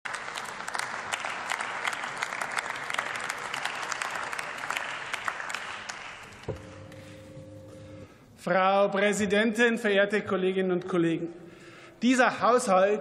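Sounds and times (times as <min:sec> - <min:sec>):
many hands clapping: 0:00.1 - 0:07.2.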